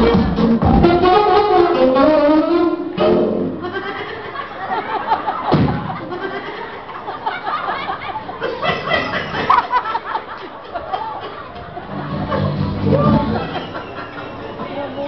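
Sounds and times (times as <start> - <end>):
audience laughter: 3.6 - 15.0
thud: 5.5 - 6.0
audience shouting and shrieking: 12.0 - 14.6.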